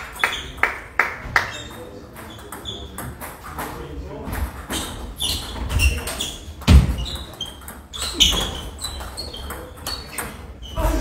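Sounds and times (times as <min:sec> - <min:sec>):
shoes squeaking on wooden floor: 0:04.5 - 0:11.0.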